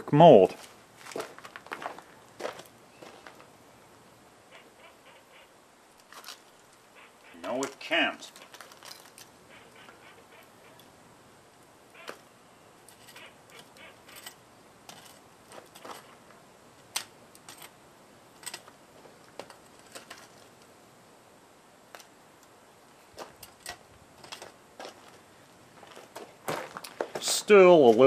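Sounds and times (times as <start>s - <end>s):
steel tongs clinking and scraping: 12.9s - 16.1s.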